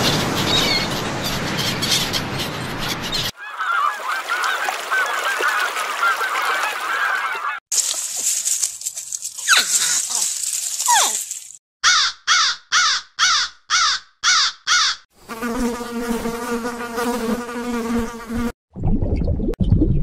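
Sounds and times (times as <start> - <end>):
crows cawing: 3.4 - 7.6, 11.8 - 15.1
insect-like buzz: 15.2 - 18.5.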